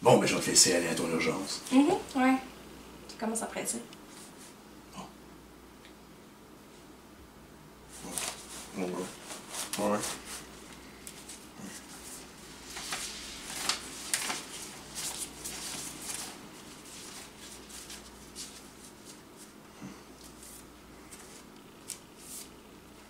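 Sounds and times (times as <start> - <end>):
banknotes rustling and flicking: 7.9 - 23.0.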